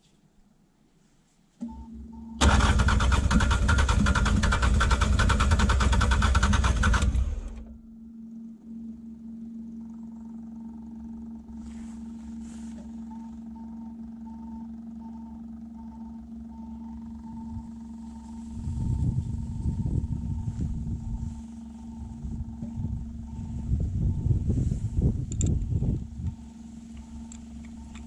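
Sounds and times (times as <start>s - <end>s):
diesel engine cranking: 2.4s - 7.7s
steady hum: 6.6s - 28.0s.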